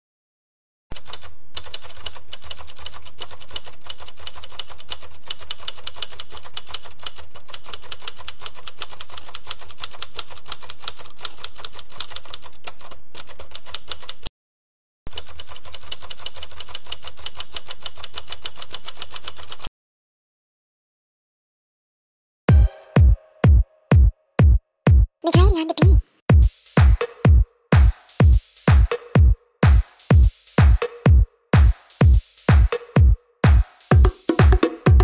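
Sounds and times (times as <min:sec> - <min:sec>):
mechanical typewriter typing: 0:00.9 - 0:14.3, 0:15.1 - 0:19.7.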